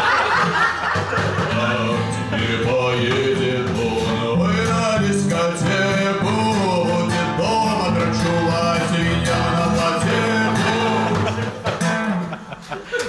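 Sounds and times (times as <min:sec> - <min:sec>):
acoustic guitar playing: 0:00.0 - 0:13.0
man singing: 0:01.4 - 0:11.6.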